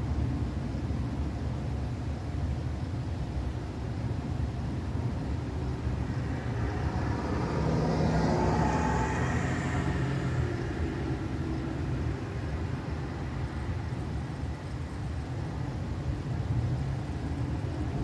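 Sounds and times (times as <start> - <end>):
steady low rumble: 3.4 - 18.0
car passing: 4.6 - 18.0.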